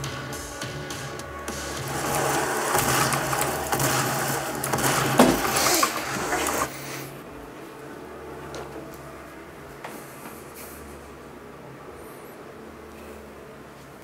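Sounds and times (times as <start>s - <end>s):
two-stroke chainsaw running: 1.6s - 6.7s.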